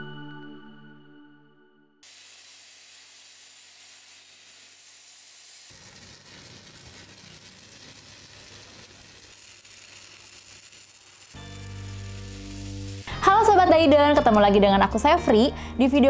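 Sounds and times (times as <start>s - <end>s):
plasma cutter hissing: 2.0s - 13.2s
welding arc crackling: 2.0s - 14.3s.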